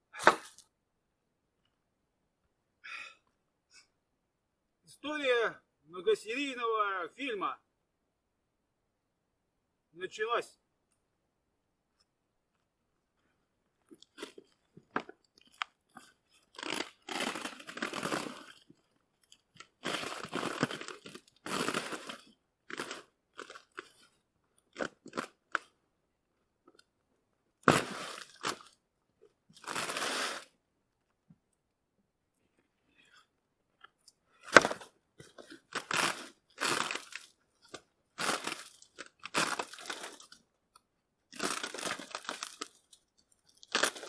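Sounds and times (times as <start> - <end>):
roofing felt crackling and tearing: 16.3 - 18.7, 19.4 - 24.0, 35.4 - 40.4, 41.3 - 44.0.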